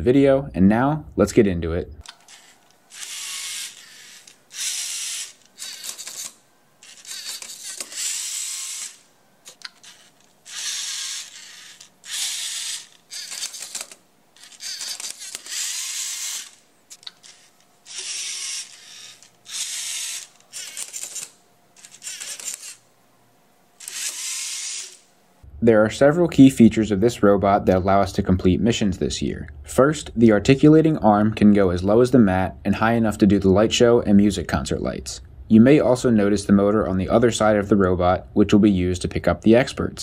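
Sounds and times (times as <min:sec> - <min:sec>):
robot motors whirring: 0:02.0 - 0:22.8, 0:23.8 - 0:25.0.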